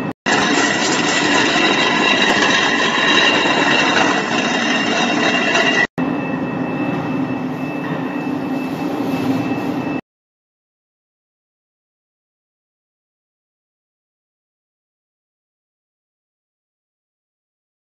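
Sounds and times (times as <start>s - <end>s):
concrete floor grinder whining: 0.3s - 6.0s.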